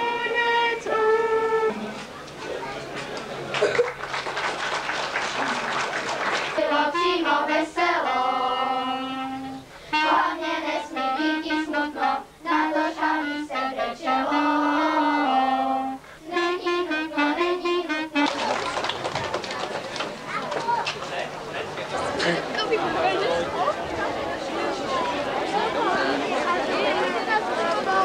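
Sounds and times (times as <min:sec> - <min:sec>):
children singing: 0:06.5 - 0:18.2.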